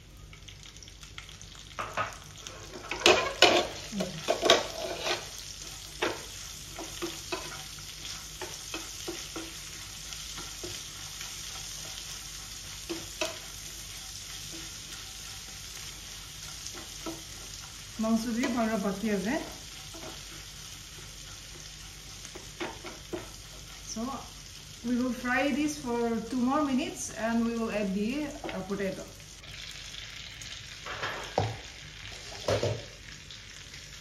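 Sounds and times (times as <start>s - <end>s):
meat and onions sizzling in a pan: 0.0s - 34.0s
wooden spatula scraping and knocking pan: 1.9s - 23.9s.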